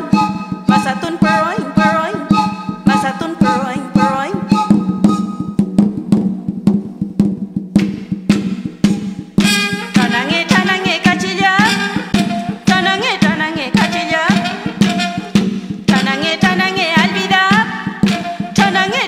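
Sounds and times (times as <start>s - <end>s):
person singing: 0.0s - 4.7s, 9.9s - 15.2s, 15.9s - 19.0s
steady drum beat: 0.0s - 19.0s.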